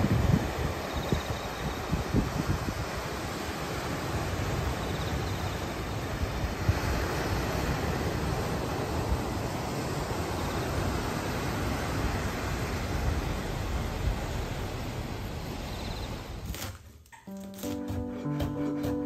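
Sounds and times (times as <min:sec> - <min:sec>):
wind buffeting microphone: 0:00.0 - 0:16.5
surf breaking on rocky shore: 0:01.6 - 0:16.5.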